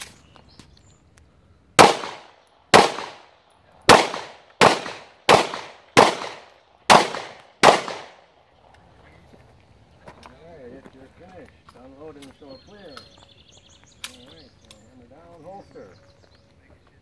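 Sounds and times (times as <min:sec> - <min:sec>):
handgun shots with echo: 0:01.8 - 0:08.2.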